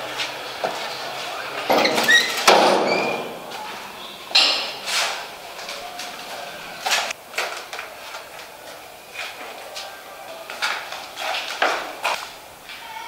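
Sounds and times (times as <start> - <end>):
door opening with squeaks: 0.8 - 5.2.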